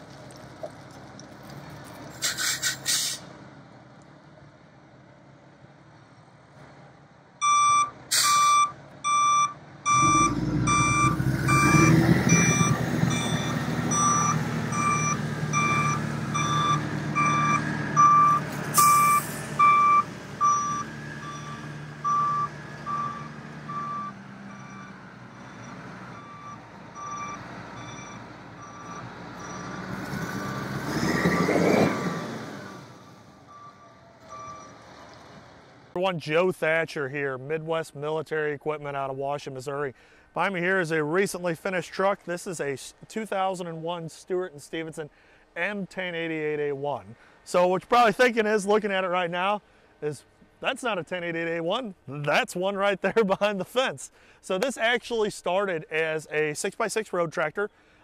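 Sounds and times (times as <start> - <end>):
water spraying onto pavement: 0.0 - 3.2
sharp air hisses: 2.1 - 3.3
truck backup alarm beeping: 7.4 - 31.6, 33.3 - 34.8
diesel engine running: 7.9 - 36.0.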